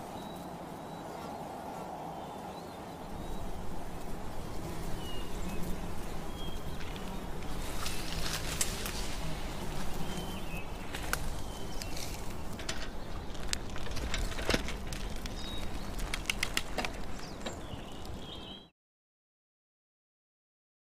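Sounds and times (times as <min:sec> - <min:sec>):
bird chirps: 0:17.1 - 0:18.7.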